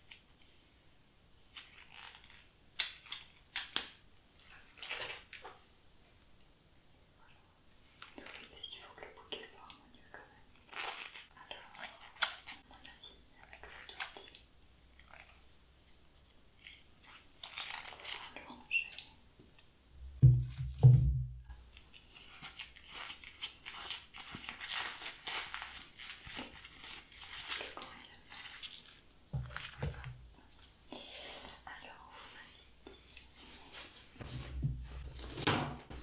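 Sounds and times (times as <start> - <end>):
plant crackling and rustling: 16.6 - 19.0, 21.7 - 30.8
low thumps: 20.0 - 21.5.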